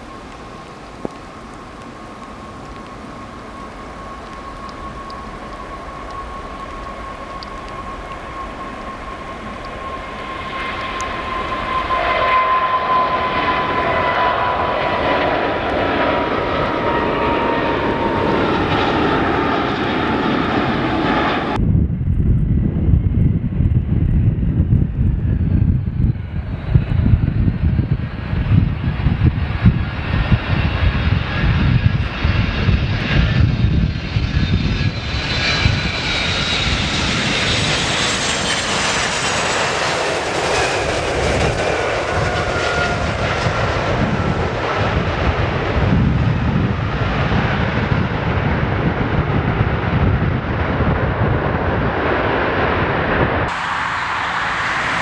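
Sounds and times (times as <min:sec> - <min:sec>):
high whining jet tones: 0:00.0 - 0:22.3, 0:23.0 - 0:55.0
airliner engine noise: 0:00.0 - 0:55.0
jet engines roaring: 0:00.0 - 0:55.0.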